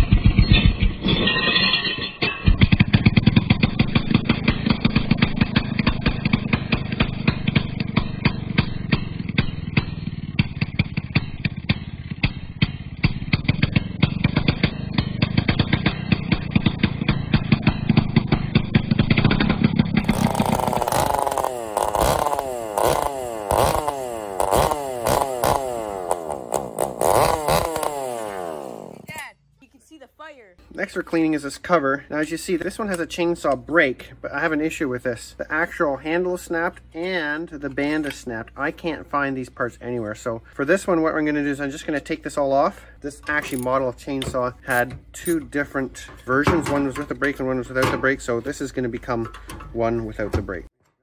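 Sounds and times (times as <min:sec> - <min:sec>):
chainsaw engine running and revving: 0:02.6 - 0:29.1.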